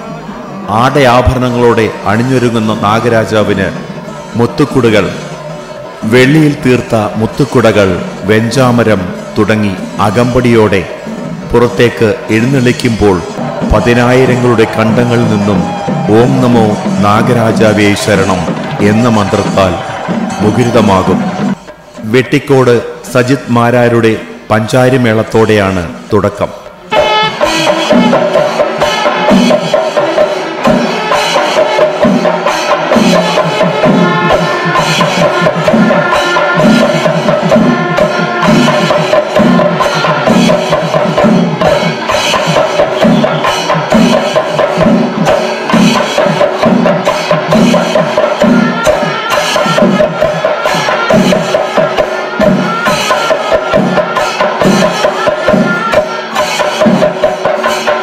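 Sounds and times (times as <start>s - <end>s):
drums beaten in steady rhythm: 6.8s - 22.2s, 25.9s - 58.0s
hand cymbals ringing: 27.0s - 58.0s.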